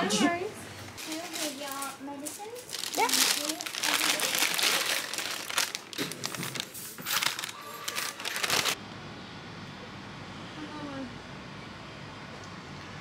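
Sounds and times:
crinkling and rustling: 0:01.0 - 0:08.8.

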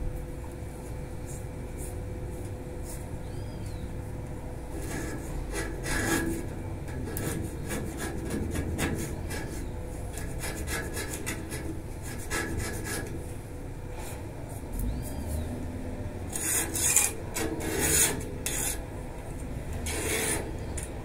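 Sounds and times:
hand tool scraping metal: 0:04.8 - 0:13.1, 0:16.3 - 0:18.9, 0:19.7 - 0:21.0.

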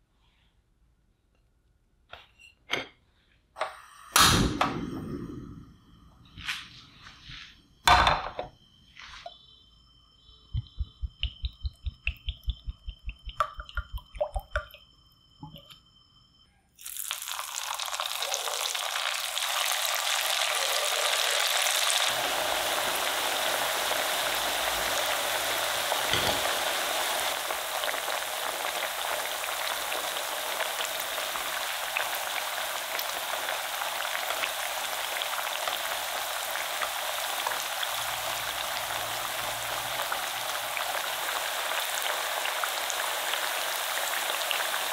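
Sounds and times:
oil poured into frying pan: 0:16.8 - 0:44.9
potatoes sizzling in hot oil: 0:16.8 - 0:44.9.

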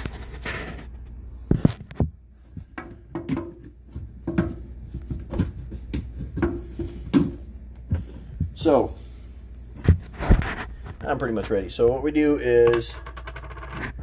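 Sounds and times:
drain pipe knocking and clicking: 0:02.8 - 0:07.4
pipe rubbing sounds: 0:09.8 - 0:11.7.

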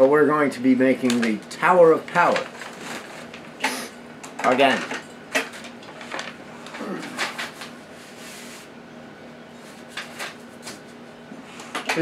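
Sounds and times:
paper rustling and crinkling: 0:02.0 - 0:03.5, 0:05.5 - 0:06.4.

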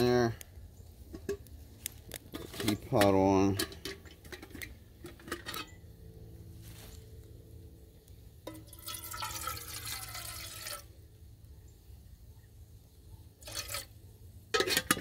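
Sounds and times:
water pouring into a kettle: 0:08.5 - 0:10.9.

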